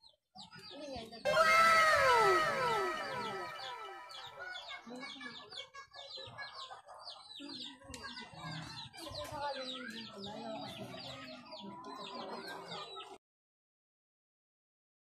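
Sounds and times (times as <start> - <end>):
low voices: 1.3 - 4.5.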